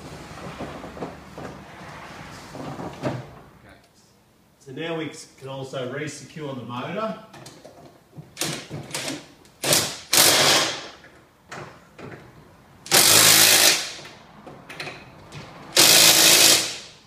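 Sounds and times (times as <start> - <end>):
cordless drill driving bolts: 8.4 - 10.9, 12.9 - 14.0, 15.7 - 16.8.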